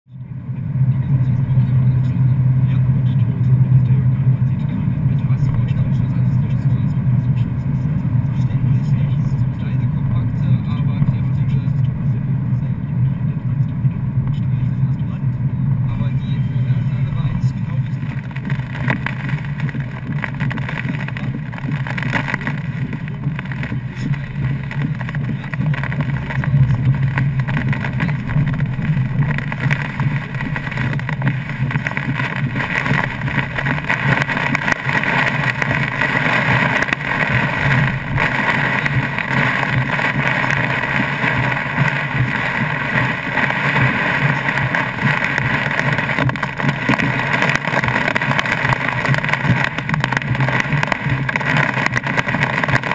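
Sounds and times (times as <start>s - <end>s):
road and engine noise: 0.0s - 52.9s
rain and hail hitting car roof: 17.3s - 52.9s.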